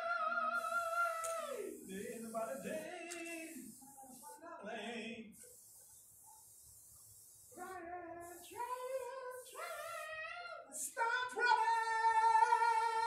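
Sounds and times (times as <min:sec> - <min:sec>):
woman singing: 0:07.6 - 0:13.0.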